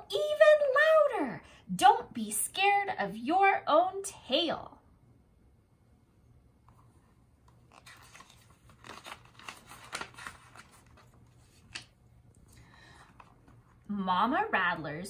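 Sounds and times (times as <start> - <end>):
book pages turning: 6.6 - 13.9.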